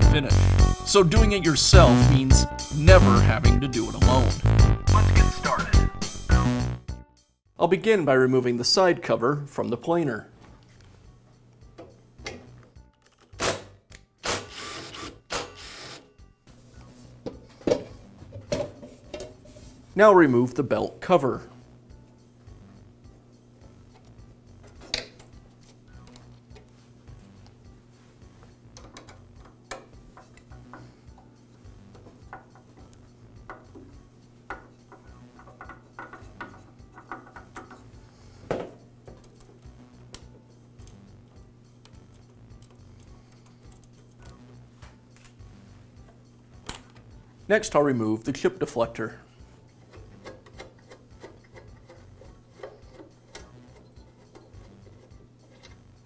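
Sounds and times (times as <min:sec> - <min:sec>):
cordless drill running: 0:14.2 - 0:16.0
hand tools clicking and tapping: 0:23.9 - 0:26.8, 0:28.7 - 0:41.0, 0:41.8 - 0:44.5, 0:49.7 - 0:55.8.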